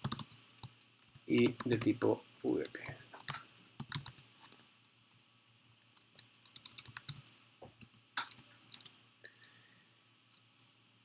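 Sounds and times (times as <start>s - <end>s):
computer keyboard keystrokes: 0.0s - 1.9s, 3.2s - 4.6s, 5.8s - 7.2s, 7.8s - 8.9s.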